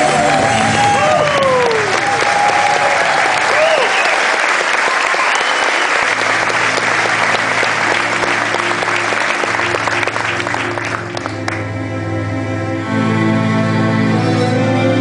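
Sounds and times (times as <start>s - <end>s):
audience applauding: 0.0s - 11.8s
low sustained music notes: 6.1s - 15.0s.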